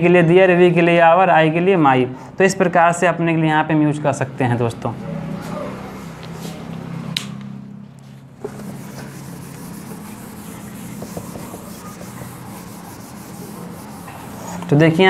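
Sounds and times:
whiteboard being wiped: 0:08.4 - 0:14.8.

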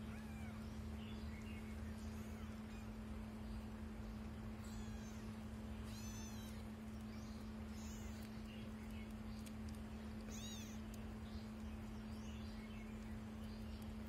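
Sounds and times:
steady low hum: 0:00.0 - 0:14.0
kittens mewing: 0:04.6 - 0:06.8, 0:10.2 - 0:10.9.

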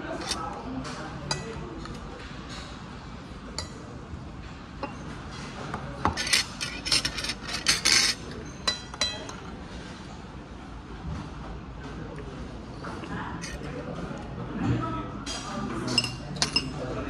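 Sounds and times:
metal cutlery clinking on a plate: 0:00.1 - 0:00.5, 0:01.2 - 0:02.7, 0:06.0 - 0:09.4, 0:15.9 - 0:16.9.

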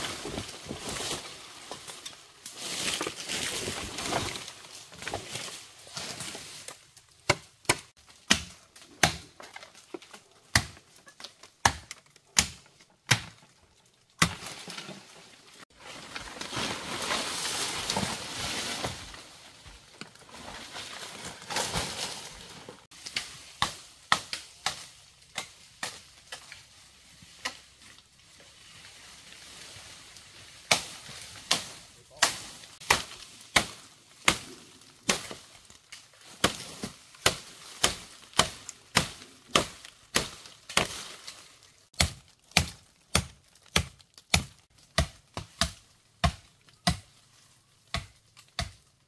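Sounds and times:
sharp knocks and chops: 0:07.2 - 0:09.5, 0:11.6 - 0:13.5, 0:47.9 - 0:48.8.

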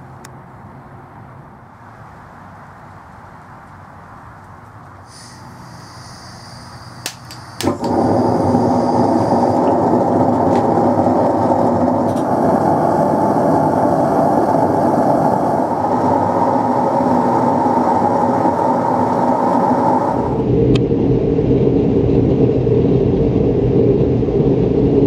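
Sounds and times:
torch igniter clicks: 0:05.1 - 0:12.6
torch flame roaring: 0:05.1 - 0:25.0.

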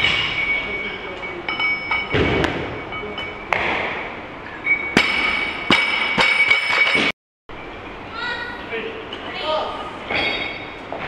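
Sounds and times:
ringing steel bar: 0:00.0 - 0:03.5, 0:04.6 - 0:07.1, 0:10.1 - 0:10.8
barbell landing with a thud: 0:02.1 - 0:02.8
metallic clanks of bar and plates: 0:04.5 - 0:07.1, 0:10.1 - 0:10.8.

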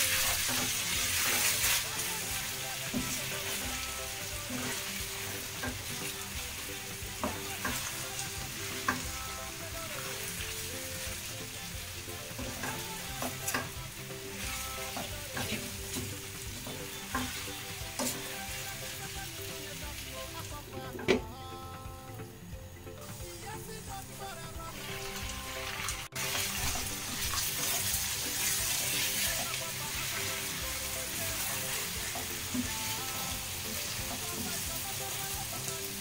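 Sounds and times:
food sizzling in a frying pan: 0:00.0 - 0:21.4, 0:23.0 - 0:36.0.

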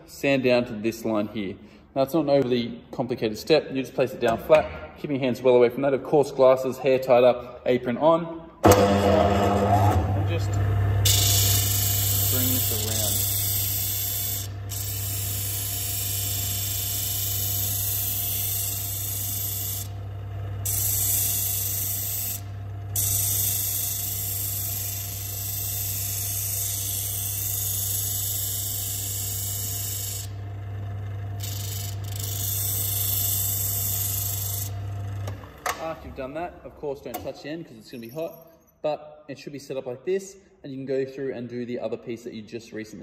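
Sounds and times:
disc sander motor hum: 0:08.7 - 0:35.7.

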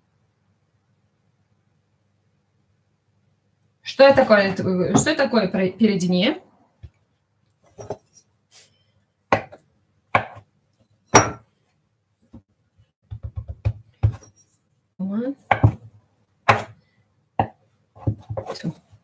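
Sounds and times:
knife chopping dough on a surface: 0:09.3 - 0:10.5, 0:11.1 - 0:11.5, 0:13.0 - 0:14.4, 0:15.4 - 0:16.8, 0:17.4 - 0:19.0.

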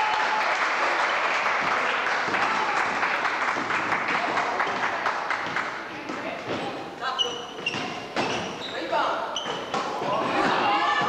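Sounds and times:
spectators applauding: 0:00.0 - 0:05.7.

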